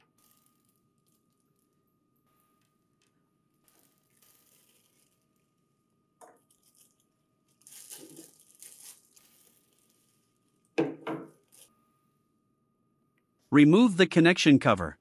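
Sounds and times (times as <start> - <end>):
plastic bag crinkling: 3.6 - 5.6, 6.4 - 10.6.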